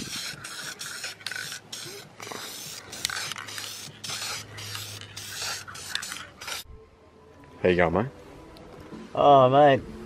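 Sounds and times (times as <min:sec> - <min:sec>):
aerosol can spraying: 0:00.0 - 0:06.7.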